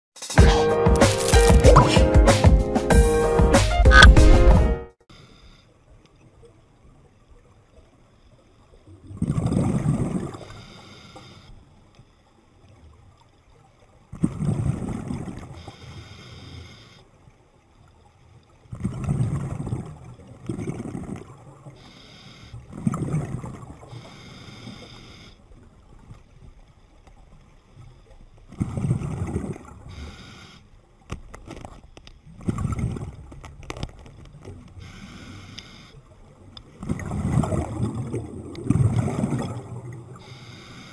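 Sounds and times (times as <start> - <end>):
regulator inhale hiss: 5.1 - 5.7, 10.4 - 11.6, 15.6 - 17.2, 21.8 - 22.7, 23.9 - 25.4, 29.9 - 30.8, 34.8 - 36.1, 40.2 - 40.9
exhaled bubbles rushing: 36.8 - 40.3.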